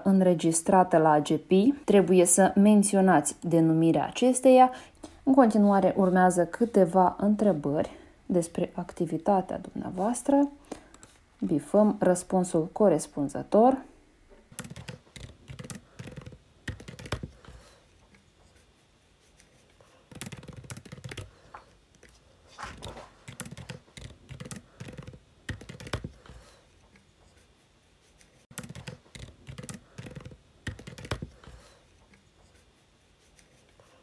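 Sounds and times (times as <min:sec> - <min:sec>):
computer keyboard typing: 0:14.5 - 0:17.6, 0:20.1 - 0:26.4, 0:28.5 - 0:31.7.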